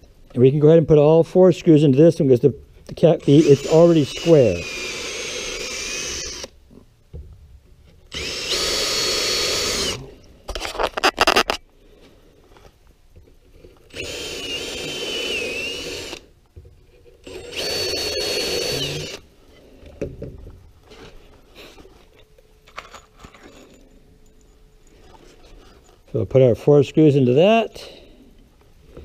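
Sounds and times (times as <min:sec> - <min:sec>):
power drill whining into wood: 0:03.2 - 0:06.5, 0:08.1 - 0:11.6, 0:13.9 - 0:16.3, 0:17.2 - 0:19.2.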